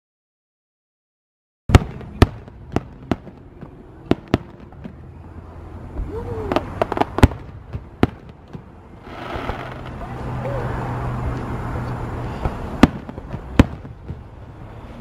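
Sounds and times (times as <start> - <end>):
firework shells bursting: 6.5 - 10.0.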